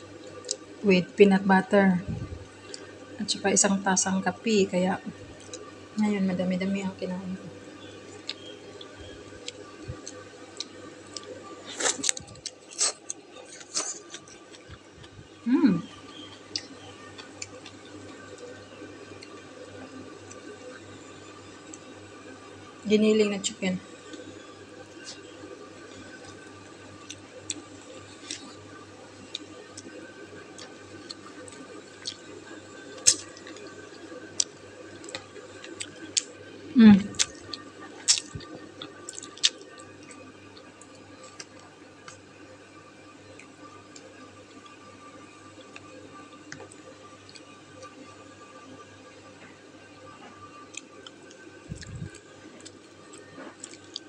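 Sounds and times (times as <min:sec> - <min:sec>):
faint steady hum: 0:00.0 - 0:54.0
sharp eating noises: 0:08.1 - 0:18.2, 0:30.6 - 0:36.3, 0:37.0 - 0:42.2, 0:50.7 - 0:54.0.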